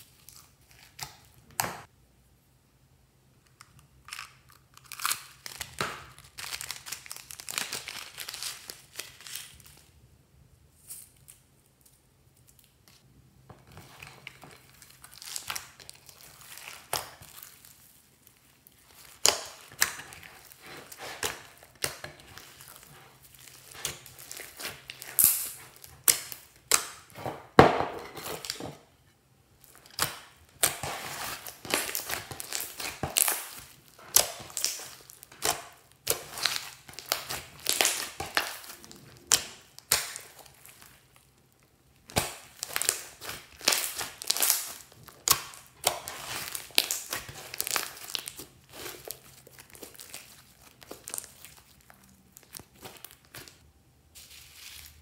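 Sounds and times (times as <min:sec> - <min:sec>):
slime crackling and popping: 0:04.0 - 0:09.8, 0:13.8 - 0:27.2, 0:29.6 - 0:53.6.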